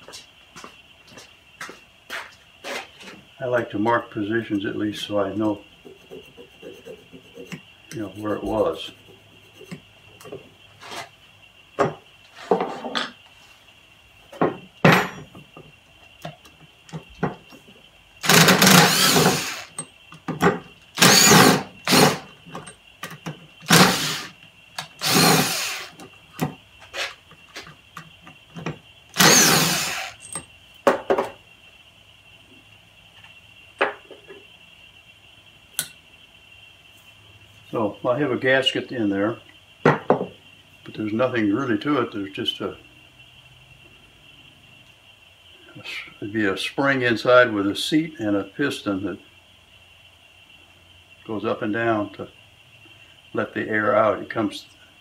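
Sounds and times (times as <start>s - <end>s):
cordless drill running: 18.2s - 19.8s, 21.0s - 22.3s, 23.6s - 26.0s, 29.1s - 30.2s.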